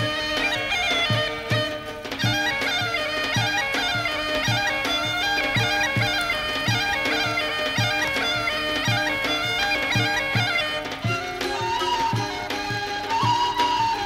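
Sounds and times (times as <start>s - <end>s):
drum beat: 0.0s - 14.0s
reedy wind melody: 0.0s - 14.0s.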